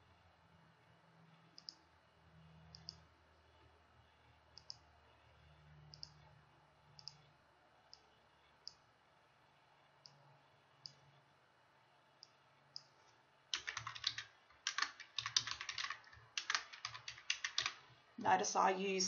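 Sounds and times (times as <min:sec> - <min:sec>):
faint low hum: 0:00.0 - 0:19.0
computer mouse clicks: 0:01.5 - 0:01.8, 0:02.7 - 0:03.0, 0:04.6 - 0:04.9, 0:05.9 - 0:06.2, 0:06.9 - 0:07.2, 0:07.9 - 0:08.8, 0:13.6 - 0:17.8.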